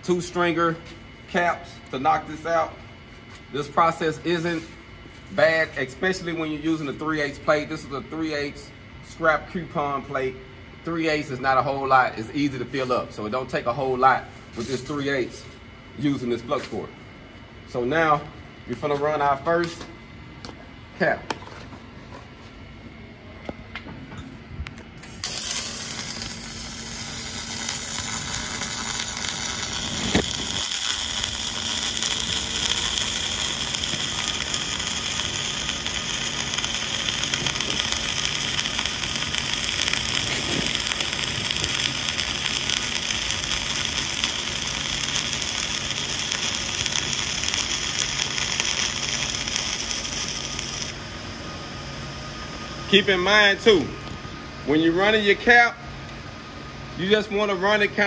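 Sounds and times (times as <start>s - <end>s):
arc welding crackling hiss: 0.0s - 10.3s, 10.9s - 16.9s, 25.0s - 51.1s
welding arc pop: 25.0s - 51.0s.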